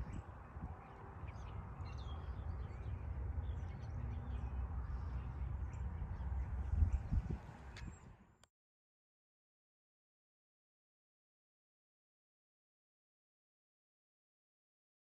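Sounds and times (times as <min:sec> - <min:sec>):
birds chirping: 0:00.0 - 0:08.2
low rumble on microphone: 0:00.0 - 0:08.4.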